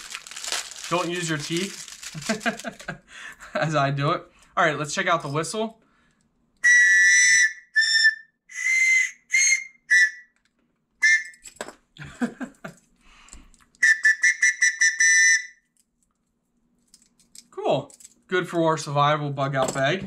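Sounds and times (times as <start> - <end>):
plastic whistle shrill blasts: 6.6 - 10.4, 11.0 - 11.4, 13.8 - 15.6.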